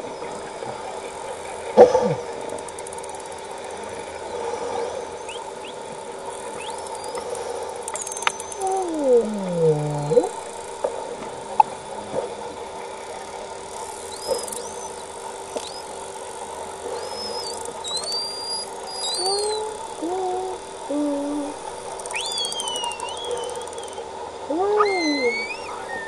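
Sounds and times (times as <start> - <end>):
steady low tone: 3.7 - 13.4, 17.7 - 26.0
whale whistles: 4.7 - 5.8, 6.5 - 10.5, 14.0 - 16.0, 16.9 - 26.0
person humming underwater: 8.4 - 10.5, 19.0 - 23.8, 24.4 - 26.0.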